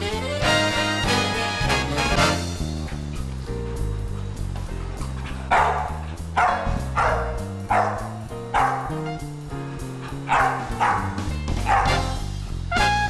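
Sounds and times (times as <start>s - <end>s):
background music: 0.0s - 13.0s
dog barking: 5.5s - 9.1s, 10.2s - 12.2s.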